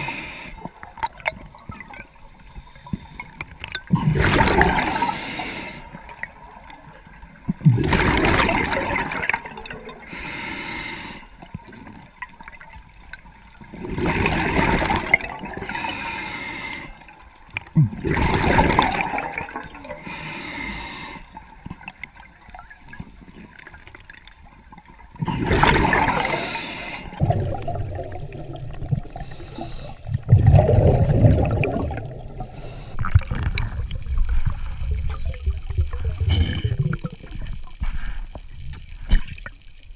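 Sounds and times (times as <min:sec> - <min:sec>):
faint hissing: 0:00.0 - 0:00.9, 0:02.2 - 0:03.5, 0:04.7 - 0:07.4, 0:09.7 - 0:12.3, 0:15.5 - 0:17.6, 0:19.8 - 0:23.9, 0:25.9 - 0:30.3, 0:31.2 - 0:39.8
low churning water noise: 0:00.0 - 0:39.9
bubbling exhaled air underwater: 0:03.0 - 0:06.7, 0:07.4 - 0:10.5, 0:13.6 - 0:16.3, 0:17.6 - 0:24.2, 0:25.1 - 0:39.6.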